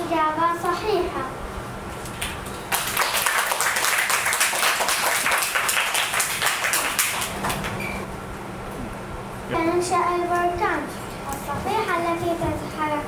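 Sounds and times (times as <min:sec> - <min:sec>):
many hands clapping: 0:02.1 - 0:07.8.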